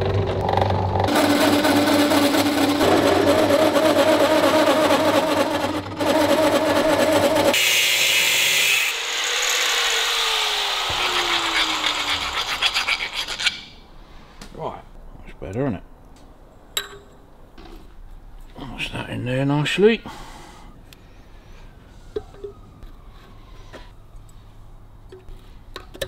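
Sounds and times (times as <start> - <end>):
lathe motor hum: 8.9 - 12.4
hand file rasping on metal: 9.7 - 13.8.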